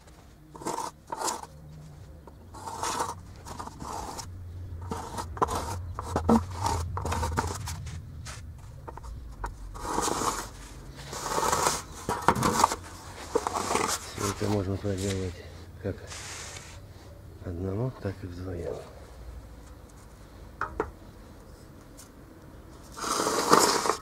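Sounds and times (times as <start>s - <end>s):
metal bar scraping over sand: 0.6s - 1.5s, 2.5s - 8.4s, 9.8s - 14.6s, 22.9s - 24.0s.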